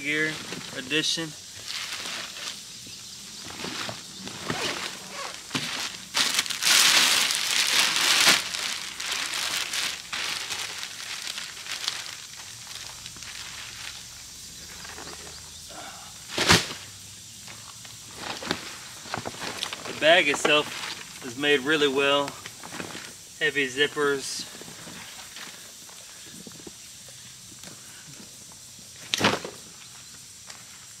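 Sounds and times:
plastic wrapping crinkling: 0:03.5 - 0:15.0, 0:18.1 - 0:21.3.

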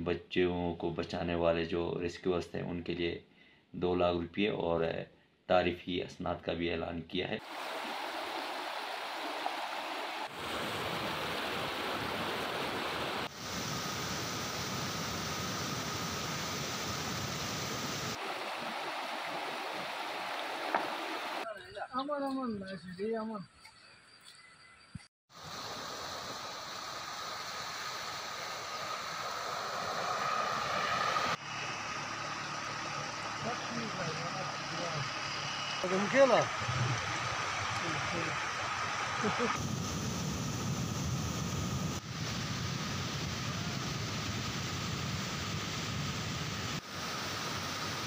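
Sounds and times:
wind: 0:07.2 - 0:48.0
floodwater rushing and churning: 0:07.4 - 0:21.4, 0:25.3 - 0:39.6.

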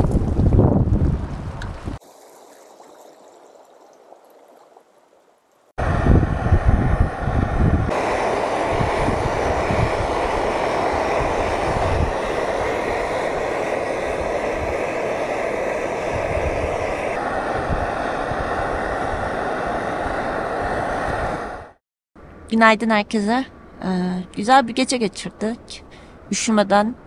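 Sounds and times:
wind buffeting microphone: 0:00.0 - 0:02.0, 0:05.8 - 0:21.8
camping stove burning with rushing hiss: 0:05.8 - 0:21.8.

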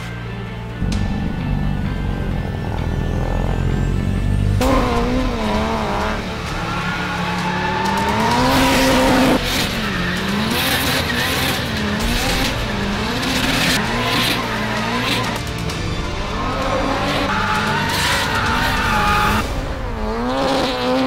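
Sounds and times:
turbocharged engine revving: 0:00.8 - 0:21.0
tyres squealing on tarmac: 0:06.4 - 0:11.6, 0:16.3 - 0:19.4.

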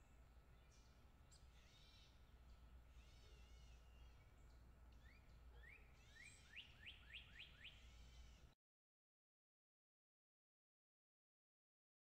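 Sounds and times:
songbird chirps: 0:00.0 - 0:08.5.

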